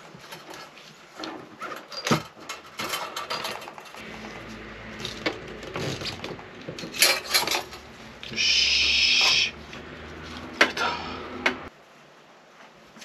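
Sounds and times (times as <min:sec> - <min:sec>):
rustling of wire and gloves: 0:00.0 - 0:08.5.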